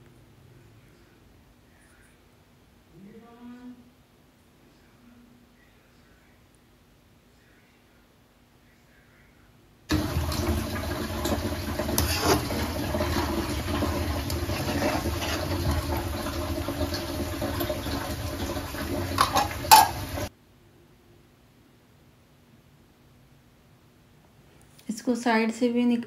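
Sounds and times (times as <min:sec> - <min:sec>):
butter bubbling and frothing: 0:09.9 - 0:20.3
metal ladle stirring and scraping: 0:11.3 - 0:16.1, 0:19.1 - 0:20.1.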